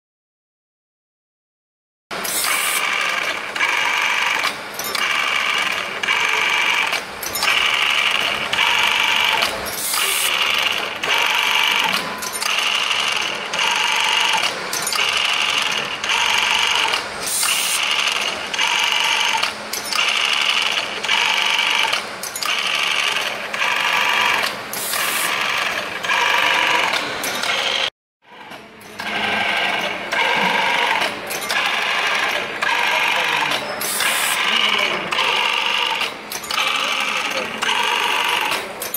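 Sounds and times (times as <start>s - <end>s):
tapping machine spindle whining: 2.2s - 38.9s.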